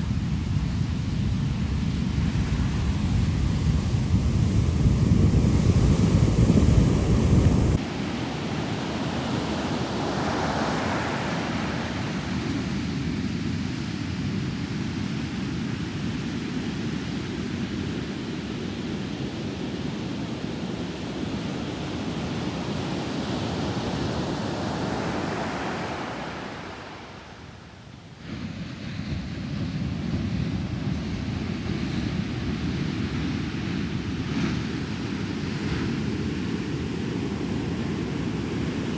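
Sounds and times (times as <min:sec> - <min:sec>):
ocean surf on sandy beach: 0:00.0 - 0:38.9
deep rumble: 0:02.1 - 0:07.8.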